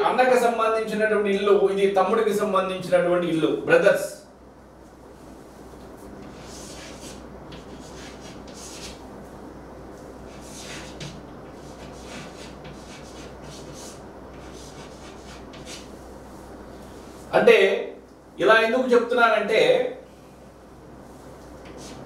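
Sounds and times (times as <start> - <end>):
low steady hum: 0.0 - 22.0
soft scratching and rubbing: 21.0 - 22.0.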